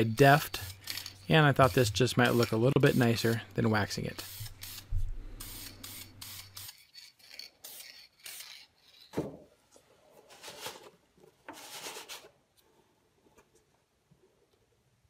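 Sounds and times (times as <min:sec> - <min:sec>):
aerosol can hissing: 0:01.6 - 0:03.4, 0:04.1 - 0:06.8.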